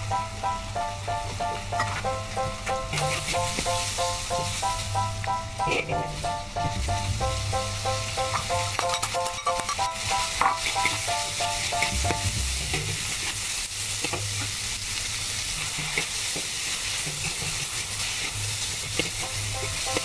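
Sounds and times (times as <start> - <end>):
light background music: 0.0 - 13.1, 19.0 - 20.0
food sizzling in wok: 0.0 - 20.0.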